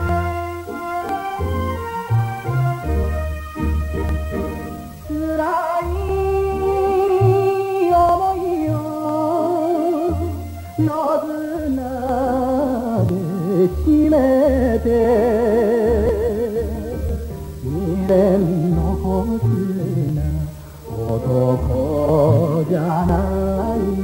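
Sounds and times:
band backing with bass: 0:00.0 - 0:24.0
man singing with heavy vibrato: 0:05.0 - 0:24.0.

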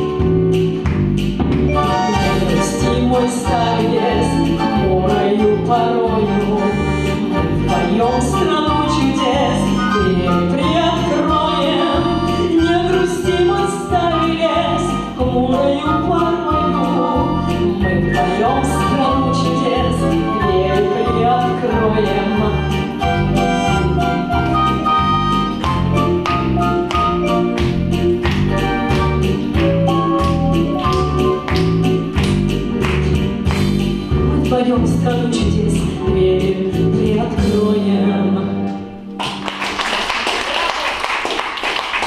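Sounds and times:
backing track with steady beat: 0:00.0 - 0:38.1
woman singing into microphone: 0:01.9 - 0:23.0, 0:34.3 - 0:38.8.

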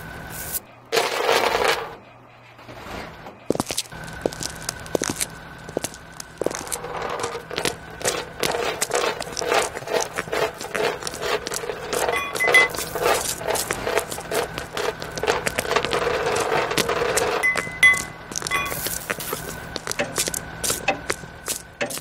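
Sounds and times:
chain and shackles rattling: 0:03.5 - 0:22.0.

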